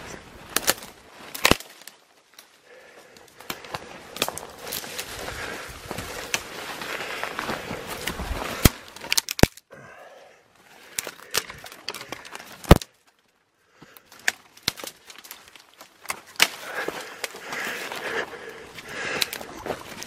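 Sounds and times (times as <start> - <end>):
leaves and branches rustling: 0.0 - 9.6, 10.5 - 20.0
twigs snapping: 0.0 - 9.7, 10.7 - 20.0
footsteps through dry leaves: 4.0 - 8.9.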